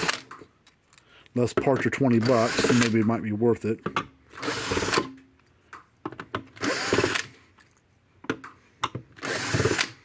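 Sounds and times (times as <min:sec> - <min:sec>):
cordless drill running: 0:00.0 - 0:00.3, 0:02.2 - 0:03.0, 0:04.3 - 0:05.1, 0:06.6 - 0:07.4, 0:09.2 - 0:10.0
drill bit clicking on screws: 0:01.7 - 0:03.1, 0:04.3 - 0:07.3, 0:08.4 - 0:10.0.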